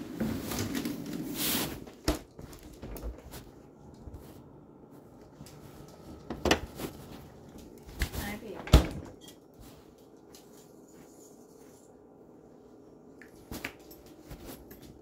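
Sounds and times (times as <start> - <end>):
rustling handling noise: 0.1 - 8.6, 13.3 - 15.0.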